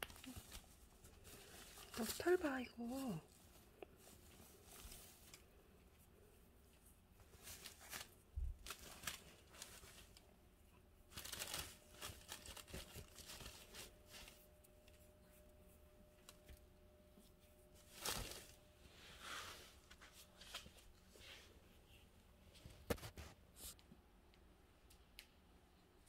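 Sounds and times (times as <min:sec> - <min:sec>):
nylon lining rustling: 0:00.0 - 0:05.8, 0:07.2 - 0:10.2, 0:11.1 - 0:16.5, 0:17.3 - 0:21.5.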